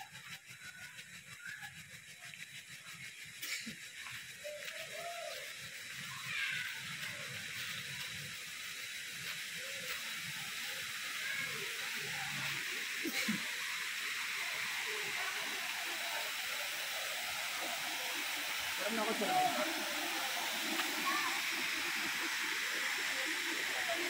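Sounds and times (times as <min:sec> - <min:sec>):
waterfall rushing: 0:11.2 - 0:24.0.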